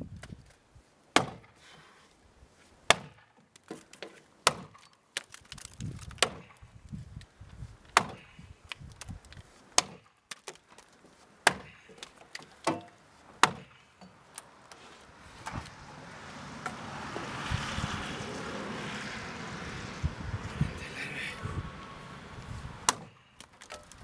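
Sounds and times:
axe chopping wood: 0:01.2 - 0:01.7, 0:02.8 - 0:06.7, 0:07.9 - 0:08.6, 0:09.7 - 0:10.6, 0:11.4 - 0:14.2, 0:22.8 - 0:24.0.

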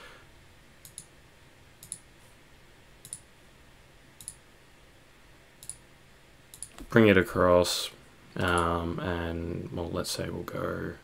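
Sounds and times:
low room hiss: 0:00.0 - 0:11.0
computer mouse clicking: 0:00.8 - 0:01.1, 0:01.8 - 0:02.1, 0:03.0 - 0:03.3, 0:04.2 - 0:04.4, 0:05.6 - 0:05.8, 0:06.5 - 0:06.9, 0:08.4 - 0:08.7.

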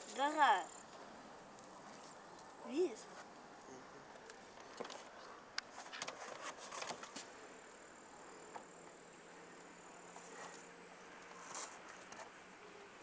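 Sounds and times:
light clicks and rustles: 0:04.2 - 0:07.4.

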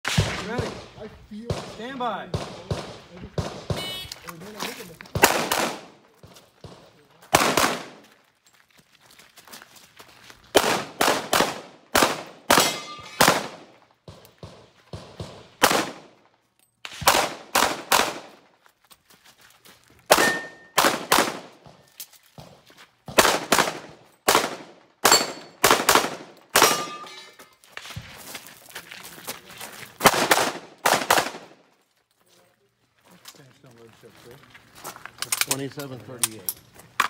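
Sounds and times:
pistol shots: 0:01.5 - 0:04.0, 0:05.1 - 0:06.0, 0:06.6 - 0:08.1, 0:10.6 - 0:16.2, 0:16.9 - 0:18.4, 0:20.1 - 0:21.7, 0:23.1 - 0:27.1, 0:30.0 - 0:31.6.

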